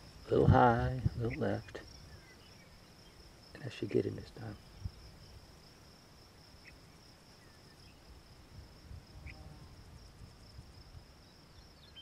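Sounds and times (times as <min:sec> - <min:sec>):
wind rumble on microphone: 0:00.0 - 0:02.3, 0:04.5 - 0:05.5, 0:08.2 - 0:12.0
insects trilling: 0:00.0 - 0:12.0.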